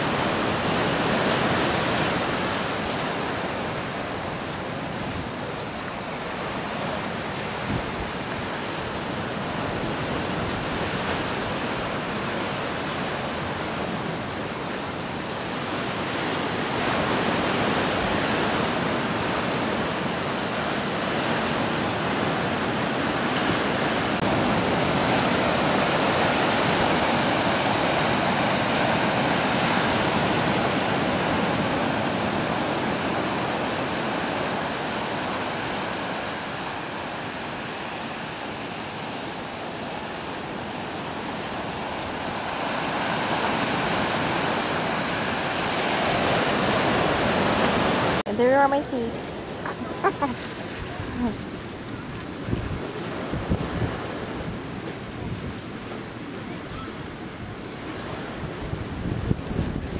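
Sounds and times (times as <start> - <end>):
surf breaking against shore: 0.0 - 59.9.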